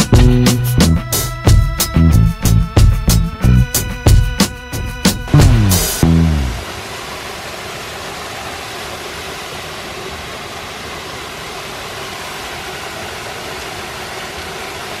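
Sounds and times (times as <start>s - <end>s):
waterfall rushing: 5.3s - 15.0s.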